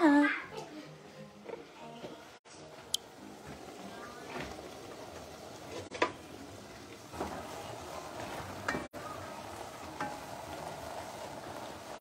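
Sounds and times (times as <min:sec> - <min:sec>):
pot simmering with low hiss: 0:01.1 - 0:12.0
pot knocking and scraping on grate: 0:05.7 - 0:06.2, 0:08.2 - 0:08.9.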